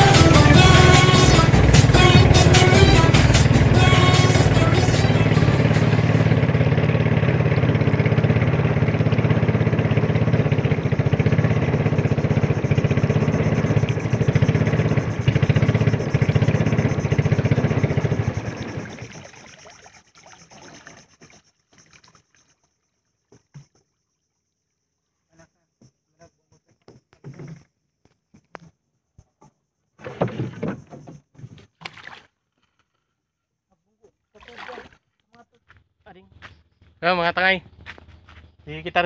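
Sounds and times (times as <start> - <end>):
motorboat engine droning: 0.0 - 21.4.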